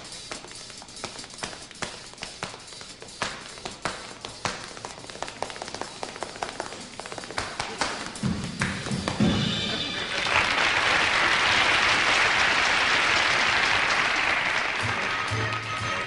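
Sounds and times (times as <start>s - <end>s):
tap-dance steps: 0.0s - 11.1s
audience applauding: 6.4s - 16.0s
band playing: 9.0s - 10.6s.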